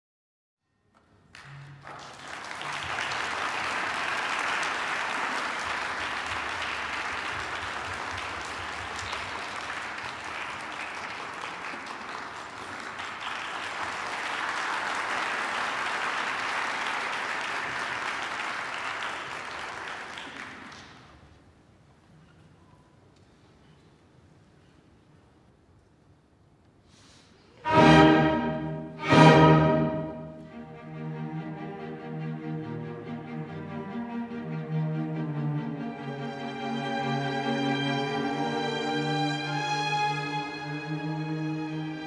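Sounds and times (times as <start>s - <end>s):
audience applauding: 1.3s - 21.3s.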